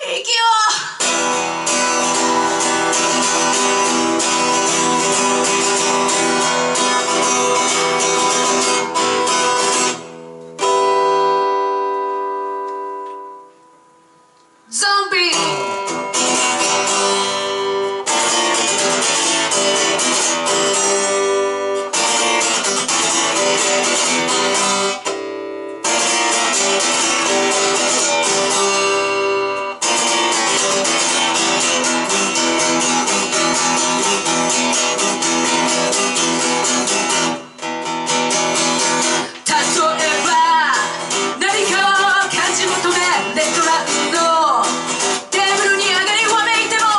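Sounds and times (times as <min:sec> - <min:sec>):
rock band playing live: 0:01.0 - 0:12.6, 0:15.4 - 0:45.7
strummed guitar chords: 0:01.0 - 0:14.3, 0:15.2 - 0:46.9
person singing: 0:01.7 - 0:05.1, 0:14.7 - 0:15.9, 0:39.3 - 0:46.9.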